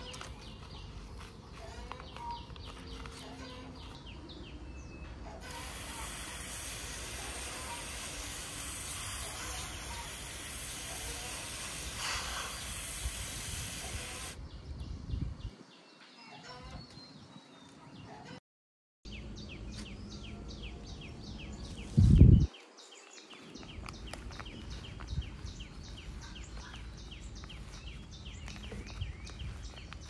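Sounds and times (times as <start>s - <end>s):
birds chirping: 0.0s - 18.3s, 19.1s - 30.0s
steady even hiss: 5.4s - 14.4s.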